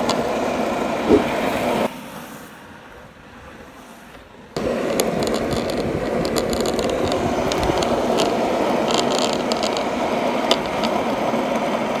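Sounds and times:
skateboard clicks and rattles: 0.0 - 1.5, 4.1 - 12.0
skateboard wheels rumbling: 0.0 - 12.0.

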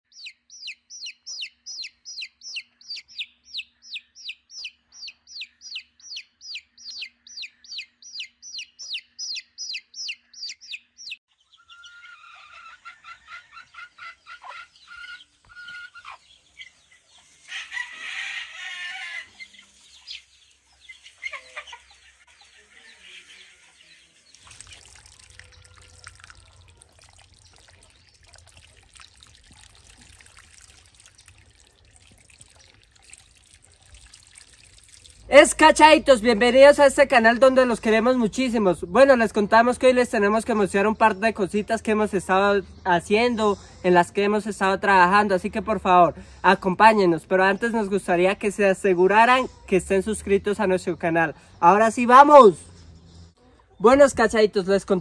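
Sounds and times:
chicks peeping: 0.1 - 24.5
chickens clucking: 0.6 - 24.5
water pouring from a pipe: 24.2 - 35.6.

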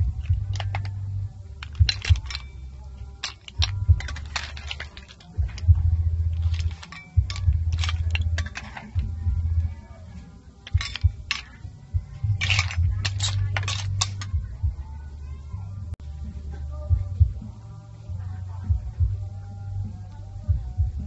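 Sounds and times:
shells and spoon clinking on dishes: 0.0 - 9.2, 10.6 - 14.4.

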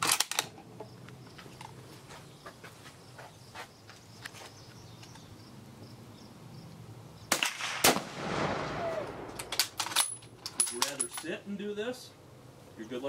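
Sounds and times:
insects chirping: 0.0 - 7.4
rifle shot: 7.3 - 10.1.

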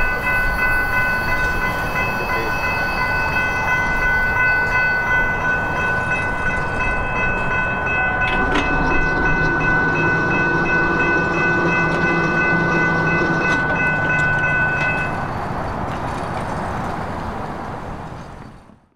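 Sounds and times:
railroad crossing bell ringing: 0.0 - 18.5
broad rumble: 5.4 - 16.5
gate mechanism humming: 6.3 - 16.0.

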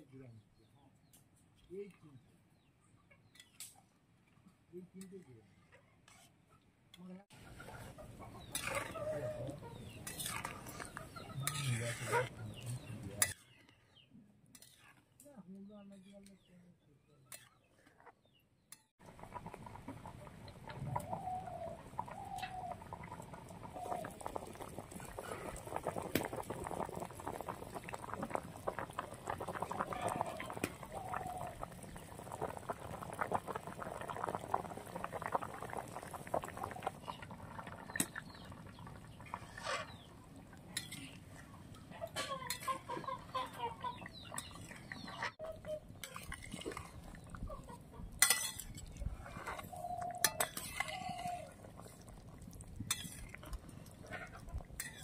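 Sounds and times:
hens clucking: 7.3 - 13.2, 19.0 - 52.2
spatula scraping a wok: 7.8 - 9.1, 9.8 - 12.4, 14.5 - 15.1, 39.3 - 40.1, 48.2 - 51.4, 52.9 - 53.3, 54.8 - 55.0
curry bubbling in a wok: 19.0 - 41.8, 42.5 - 55.0.

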